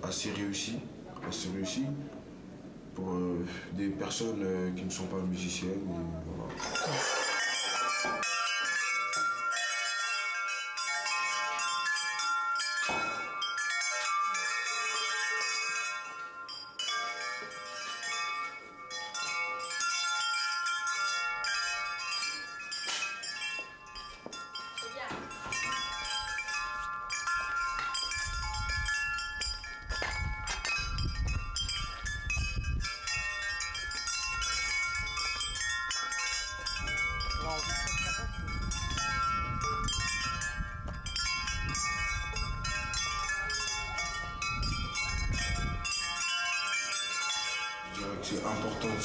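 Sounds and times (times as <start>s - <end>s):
chimes ringing: 6.6s - 49.0s
sharp knocks: 12.8s - 13.3s
wind rumble on microphone: 28.0s - 46.1s.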